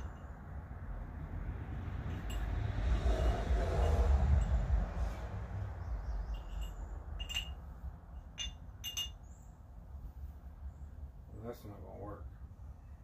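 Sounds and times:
small metal parts clinking: 0:06.3 - 0:09.3.

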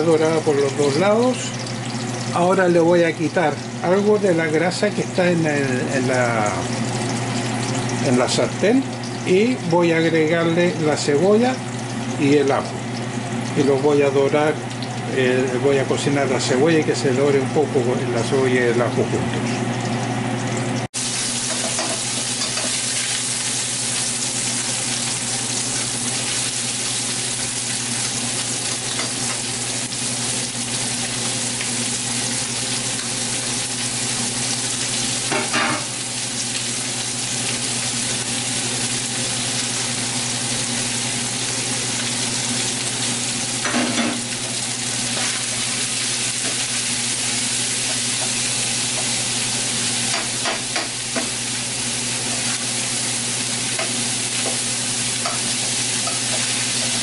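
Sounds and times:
meat and onions sizzling: 0:00.0 - 0:15.8, 0:19.4 - 0:57.0.

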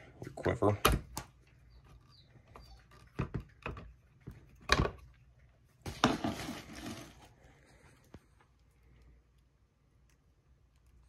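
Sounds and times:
rustling and scraping: 0:01.8 - 0:09.0.

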